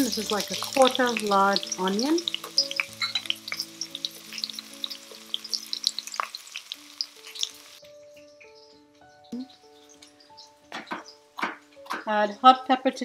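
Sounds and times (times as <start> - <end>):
onions sizzling in hot oil: 0.0 - 7.8.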